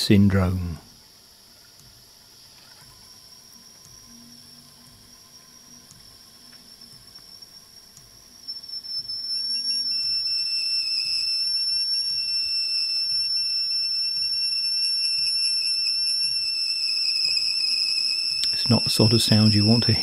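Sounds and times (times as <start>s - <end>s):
tape squealing: 8.4s - 20.0s.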